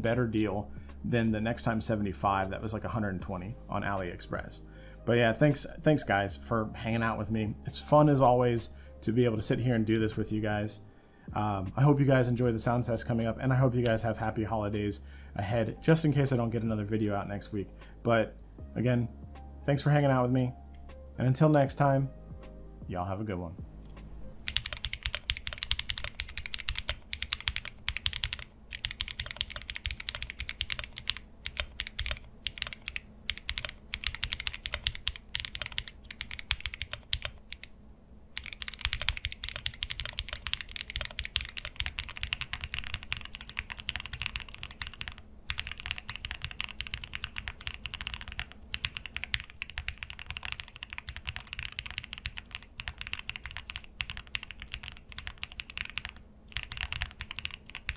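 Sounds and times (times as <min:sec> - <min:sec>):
mechanical keyboard key clacks: 0:24.5 - 0:37.6, 0:38.4 - 0:57.9.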